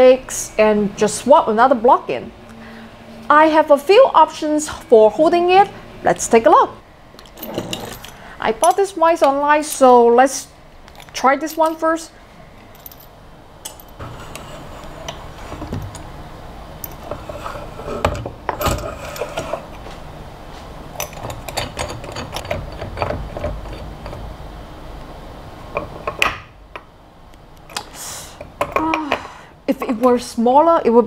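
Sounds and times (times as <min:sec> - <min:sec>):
metal-on-metal scraping: 0:13.7 - 0:16.0, 0:16.9 - 0:19.9
metal vise clicks and knocks: 0:21.0 - 0:24.3.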